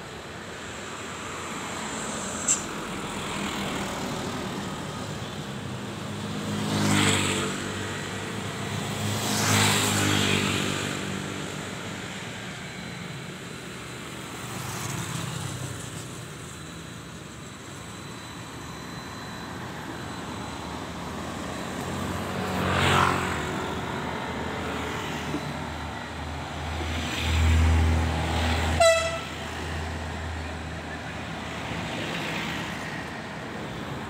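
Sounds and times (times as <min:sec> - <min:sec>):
cars driving past: 0:19.6 - 0:34.0.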